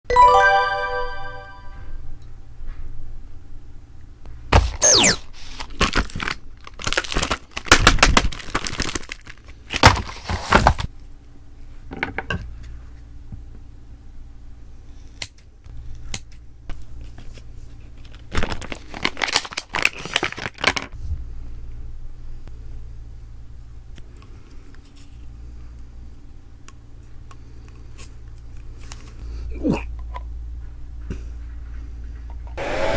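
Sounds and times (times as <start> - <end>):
plastic packaging crinkling: 5.3 - 10.9, 17.9 - 21.0.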